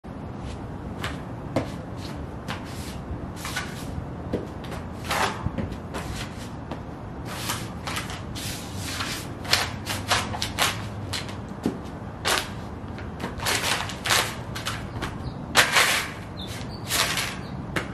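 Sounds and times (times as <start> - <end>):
boots scuffing on concrete: 0.4 - 17.9.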